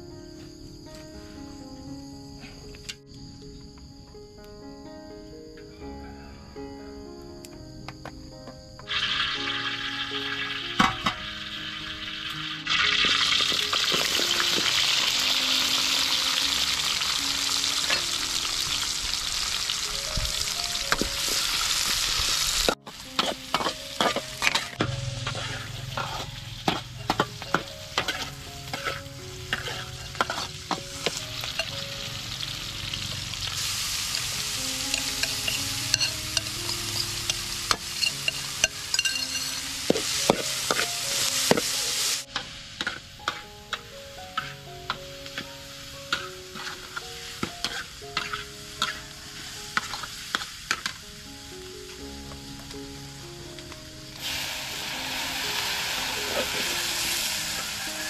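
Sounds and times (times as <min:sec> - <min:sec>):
soft background music: 0:00.0 - 0:58.0
shallots sizzling in hot oil: 0:08.9 - 0:58.0
metal spatula scraping a wok: 0:23.1 - 0:31.8, 0:33.5 - 0:41.6, 0:46.1 - 0:47.0, 0:47.6 - 0:49.0.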